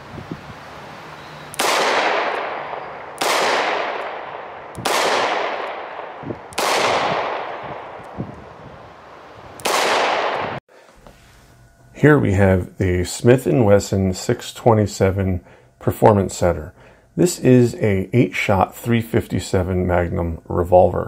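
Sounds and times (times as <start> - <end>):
revolver shots with echo: 1.5 - 8.2, 9.6 - 10.6.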